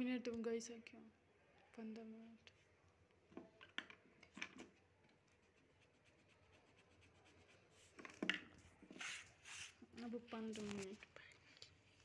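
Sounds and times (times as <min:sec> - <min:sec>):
pencil sketching on paper: 0:05.3 - 0:08.0, 0:08.9 - 0:09.8.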